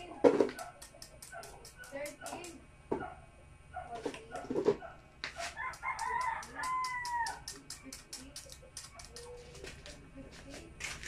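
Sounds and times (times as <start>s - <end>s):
paintbrush tapping and scratching: 0.3s - 3.1s, 3.9s - 11.0s
rooster crowing: 5.4s - 7.6s.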